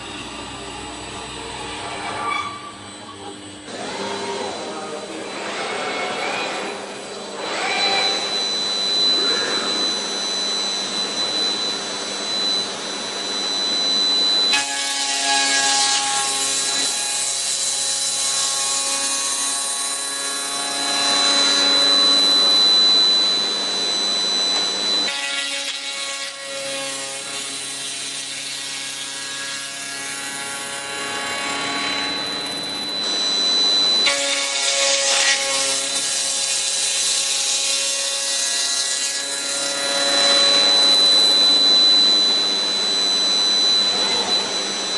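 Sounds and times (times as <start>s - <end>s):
motor high whine: 0.0s - 15.0s, 18.1s - 25.1s, 30.0s - 35.1s, 39.2s - 44.9s.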